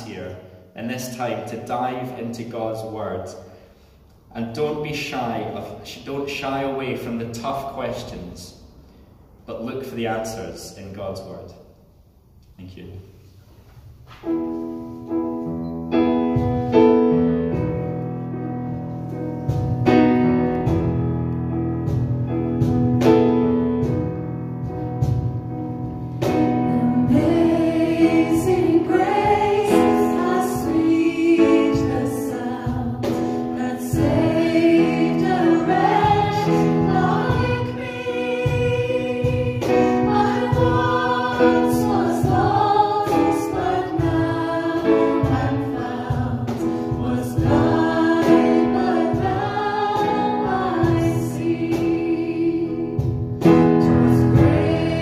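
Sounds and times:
electric keyboard piano chords: 14.2 - 55.0
man and women singing: 26.6 - 53.0, 53.8 - 55.0.

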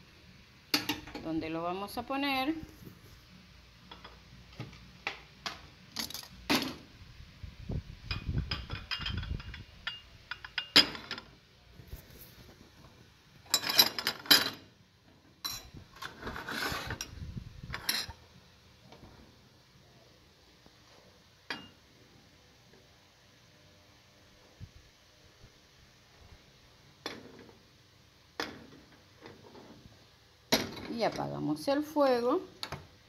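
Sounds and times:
dishes clinking and knocking: 0.8 - 1.2, 3.9 - 6.8, 8.1 - 11.3, 21.5 - 21.8
scraping sounds: 16.0 - 17.1.

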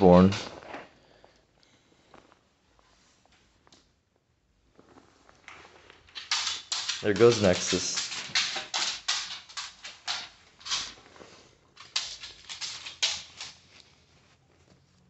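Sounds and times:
rustles and scuffs on plastic sheeting: 13.5 - 15.0.

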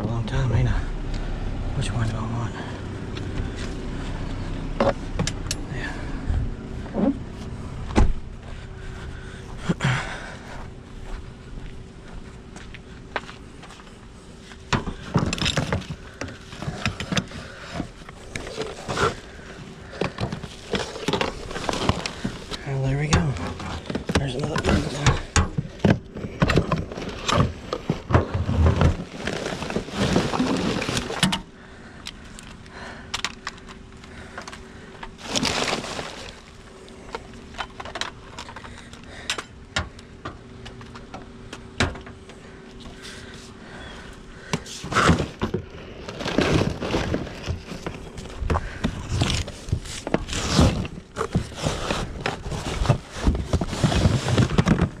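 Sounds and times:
faint steady hum: 0.0 - 55.0
items knocking and clattering: 14.7 - 31.5, 44.4 - 55.0
plastic bags crinkling: 15.2 - 25.0, 26.5 - 31.5, 34.5 - 38.9, 44.4 - 55.0.

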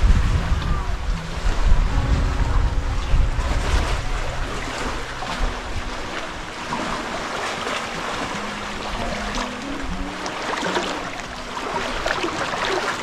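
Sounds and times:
wind on microphone: 0.0 - 13.0
sea water lapping on rocks: 3.2 - 13.0.

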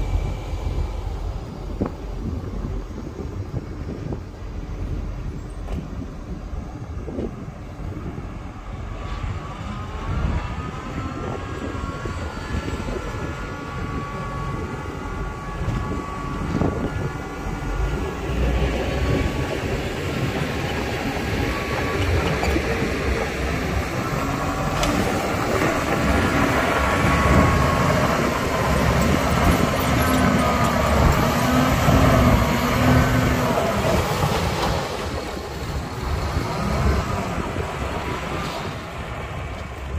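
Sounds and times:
diesel engine drone with whine: 0.0 - 39.9.

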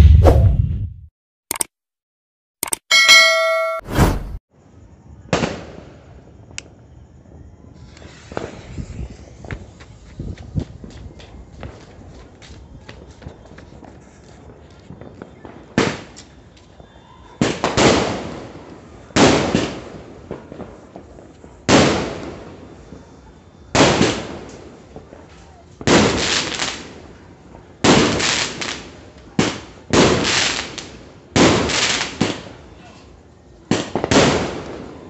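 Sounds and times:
firework bangs: 5.3 - 6.1, 7.8 - 23.0, 23.7 - 32.6, 33.7 - 35.0.

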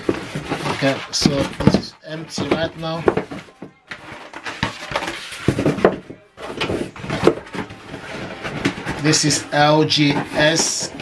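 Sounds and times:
packaging rustling and scraping: 0.0 - 11.0.

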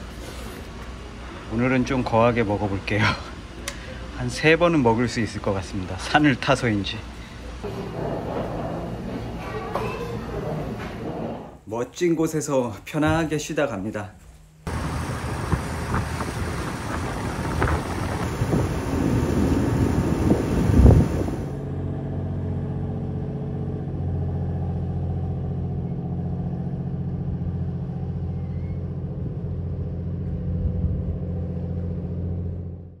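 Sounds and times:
boat engine: 5.2 - 11.7, 14.7 - 33.0
wind and water noise: 14.7 - 22.4.

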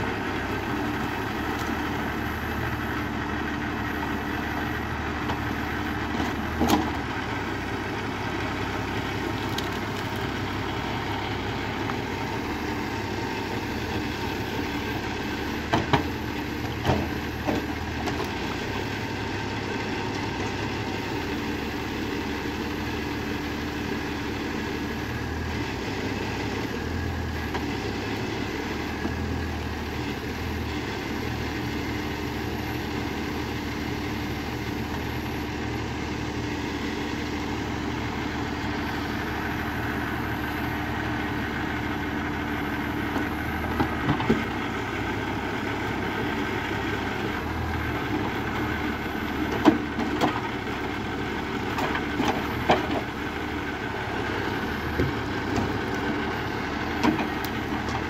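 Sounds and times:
tractor diesel engine running: 0.0 - 58.0
logs knocking together: 6.1 - 7.0, 15.6 - 18.4, 43.1 - 44.6, 49.4 - 50.5, 51.7 - 53.2, 56.9 - 58.0.

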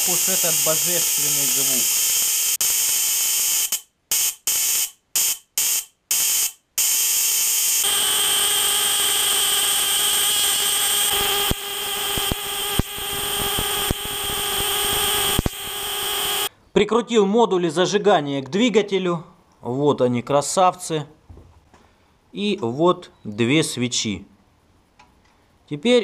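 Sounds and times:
high-pitched electrical sparking buzz: 0.0 - 16.5
sharp clicks: 10.6 - 16.4.

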